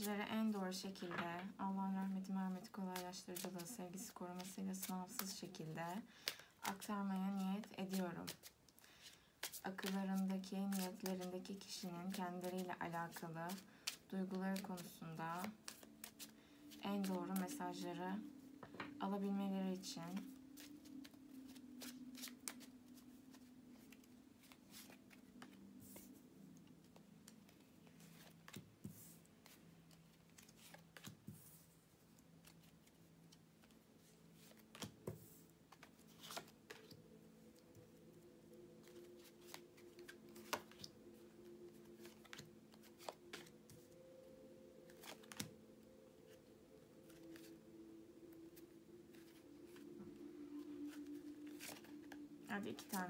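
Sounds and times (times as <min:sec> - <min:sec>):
cards rustling and clicking: 0:02.8 - 0:06.9, 0:07.8 - 0:17.9, 0:20.1 - 0:31.6, 0:32.4 - 0:37.9, 0:38.8 - 0:44.0, 0:44.8 - 0:45.6, 0:47.0 - 0:47.5, 0:49.1 - 0:49.9, 0:50.6 - 0:53.0.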